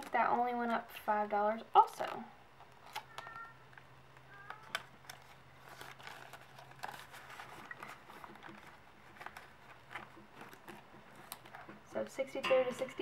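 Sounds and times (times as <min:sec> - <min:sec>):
banknotes rustling and clicking: 0:02.0 - 0:12.0.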